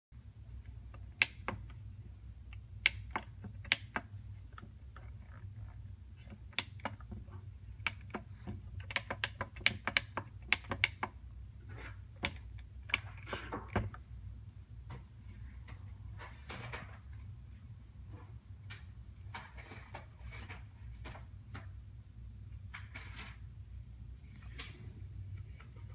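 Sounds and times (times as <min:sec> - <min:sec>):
fingers tapping plastic pads: 0:02.5 - 0:05.2, 0:06.2 - 0:11.2.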